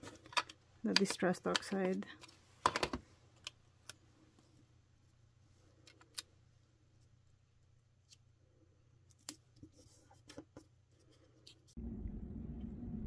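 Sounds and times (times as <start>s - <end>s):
steady low hum: 11.8s - 13.0s.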